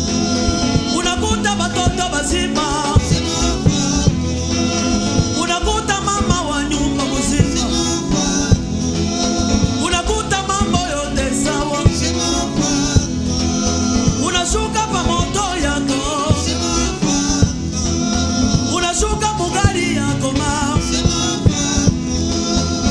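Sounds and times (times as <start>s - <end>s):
band with drums and bass: 0.0s - 22.9s
male voices singing together: 0.0s - 22.9s.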